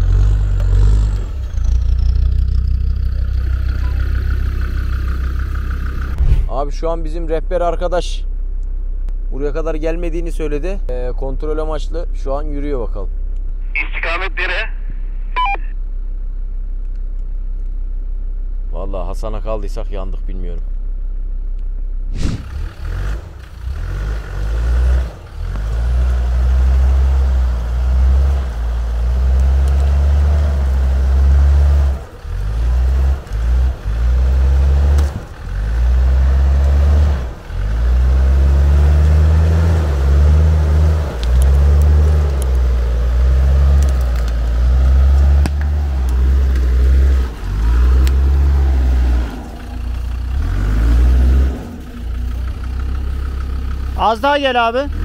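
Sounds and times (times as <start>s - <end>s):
off-road vehicle engine revving: 0.0s - 6.9s, 22.1s - 55.0s.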